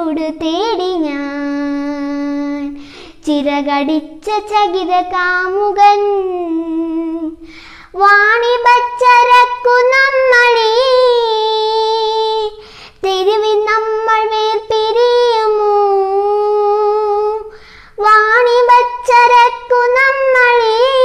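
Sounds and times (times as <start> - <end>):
girl singing unaccompanied: 0.0 - 21.0
girl breathing in: 2.7 - 3.2, 7.4 - 8.0, 12.6 - 13.0, 17.5 - 18.0.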